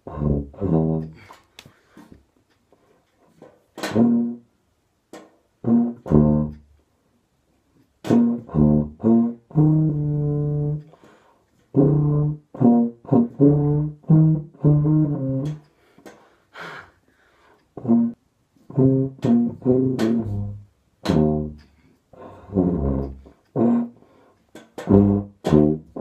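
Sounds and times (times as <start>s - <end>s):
low brass horn playing: 0.0s - 1.3s, 3.8s - 4.5s, 5.6s - 6.7s, 8.0s - 11.0s, 11.7s - 15.6s, 17.8s - 24.1s, 24.8s - 26.0s.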